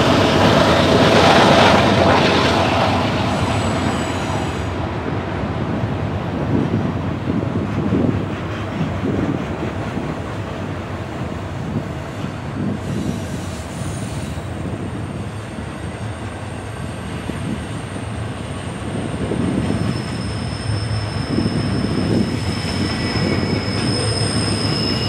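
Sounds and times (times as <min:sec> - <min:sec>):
train wheels rumbling on rail: 0:00.0 - 0:25.0
high wheel squeal: 0:03.2 - 0:04.8, 0:18.8 - 0:25.0.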